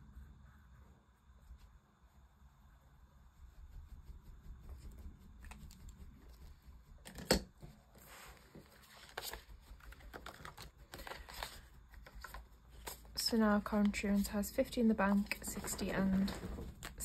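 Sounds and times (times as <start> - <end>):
paper and plastic rustling: 7.0 - 17.0.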